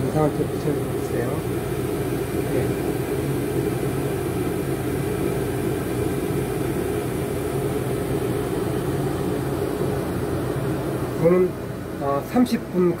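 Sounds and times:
shoe dryer blower whirring: 0:00.0 - 0:13.0.

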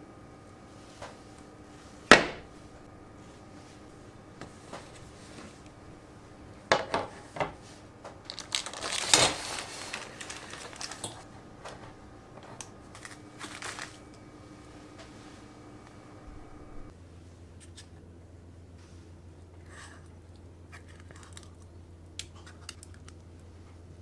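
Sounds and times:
baking parchment crinkling: 0:07.7 - 0:11.3, 0:12.6 - 0:14.2.

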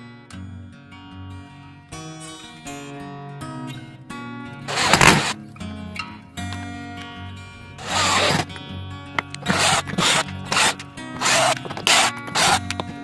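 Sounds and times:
background music: 0:00.0 - 0:13.0
drill driver bursts: 0:04.7 - 0:05.4, 0:07.8 - 0:08.5, 0:09.4 - 0:13.0.

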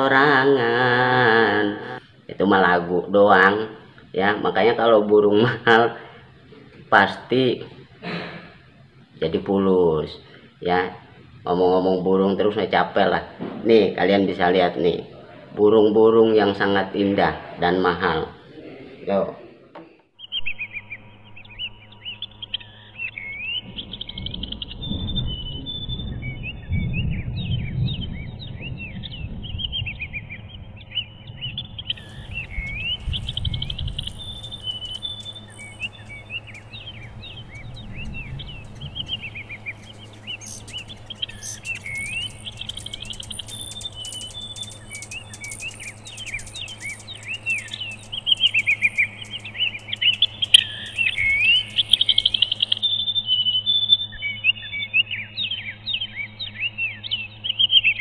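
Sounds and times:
songbirds chirping: 0:00.0 - 0:58.0
low rumble: 0:20.5 - 0:52.8.

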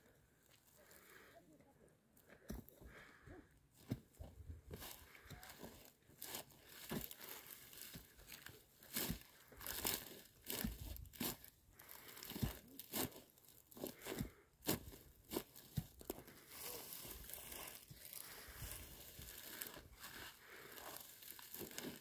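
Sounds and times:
dry stems crackling and snapping: 0:20.4 - 0:22.0.

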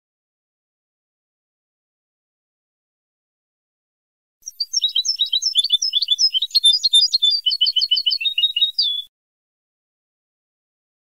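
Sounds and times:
goldfinch song: 0:04.4 - 0:09.1.

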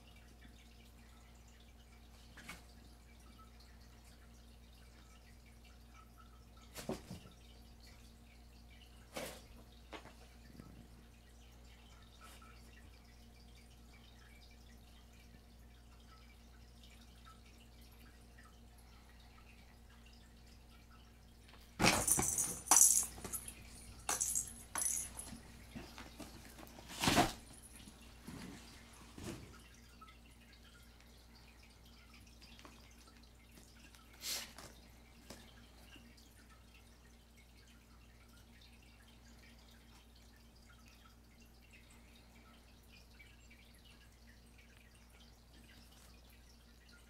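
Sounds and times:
cats rustling and rattling toys: 0:21.8 - 0:29.5.

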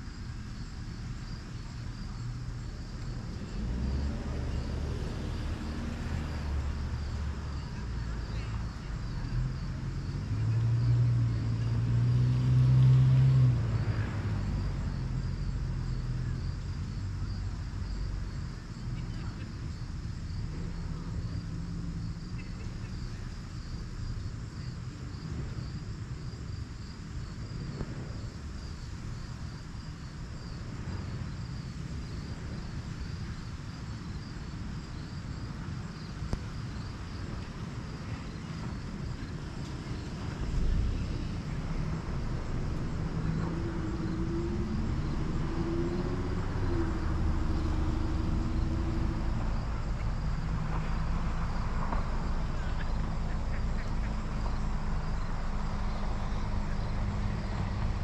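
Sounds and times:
insects chirring: 0:00.0 - 0:58.0
low engine hum: 0:00.0 - 0:58.0
low rumble: 0:38.6 - 0:58.0.

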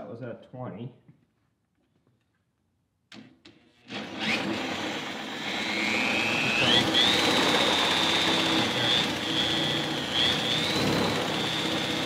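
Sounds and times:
cordless drill whining: 0:03.8 - 0:12.0.

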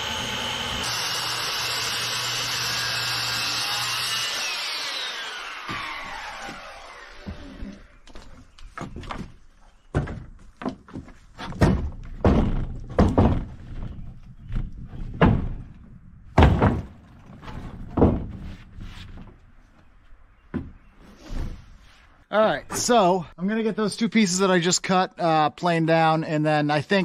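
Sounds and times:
timber knocking on wooden rail: 0:09.9 - 0:13.9.

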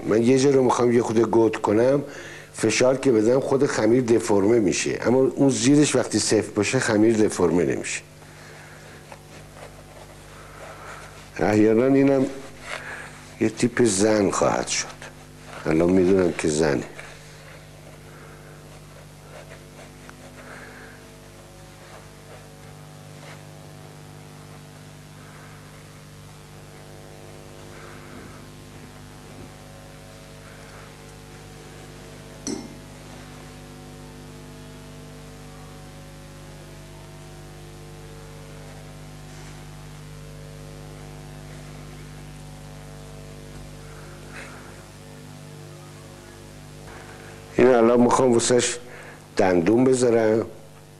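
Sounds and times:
steady electrical hum: 0:00.0 - 0:50.9
fingers working modelling paste: 0:18.7 - 0:20.4.

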